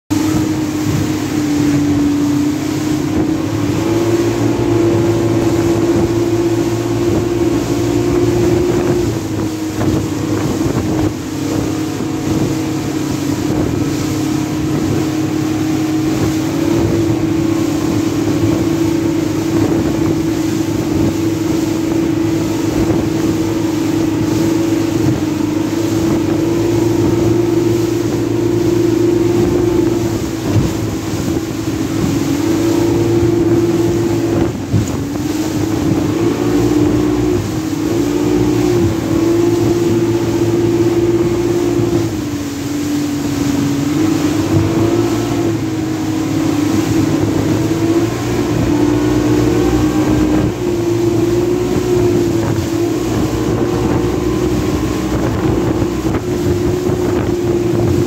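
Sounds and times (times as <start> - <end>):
motorboat engine running: 0.1 - 58.0
water rushing and splashing: 0.1 - 58.0.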